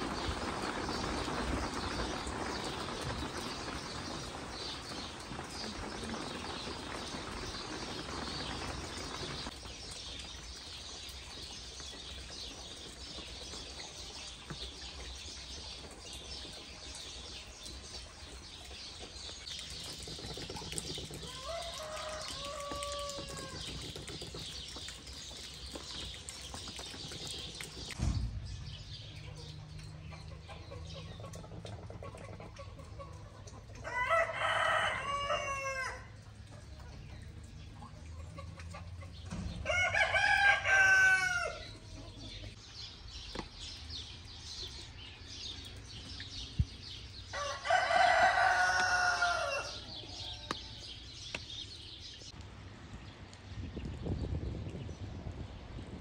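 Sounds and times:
small birds chirping: 0.0 - 39.5, 41.4 - 52.5
rooster crowing: 21.3 - 23.6, 33.8 - 36.1, 39.7 - 41.6, 47.4 - 50.8
short thump: 28.0 - 29.0.

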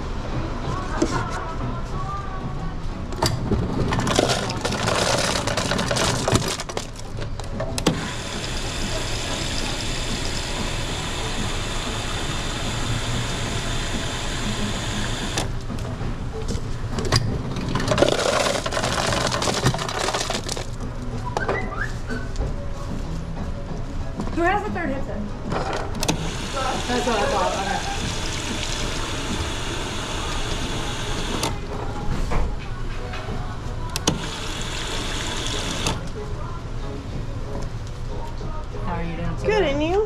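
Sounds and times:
soda fizzing into cup: 26.6 - 29.4.

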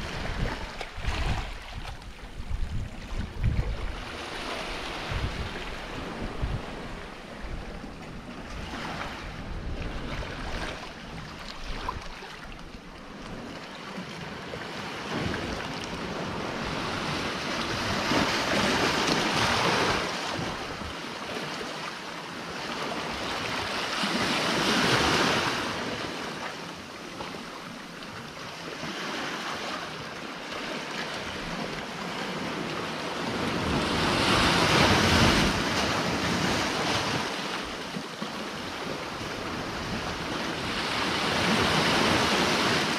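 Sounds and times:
wind buffeting microphone: 0.0 - 12.8
waves breaking on rocky shore: 0.0 - 42.9.

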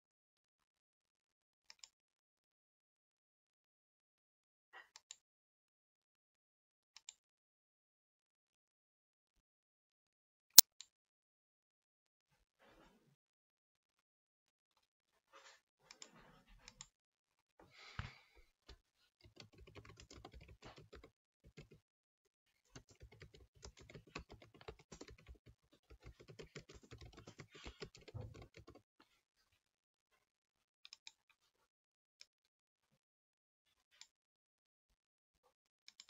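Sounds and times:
typing on computer keyboard: 19.3 - 21.8, 22.8 - 28.8.

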